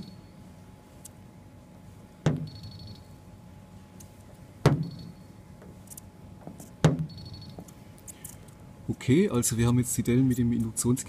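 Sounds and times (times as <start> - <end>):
sharp knock on sheet metal: 2.2 - 2.6, 4.7 - 5.0, 6.8 - 7.1.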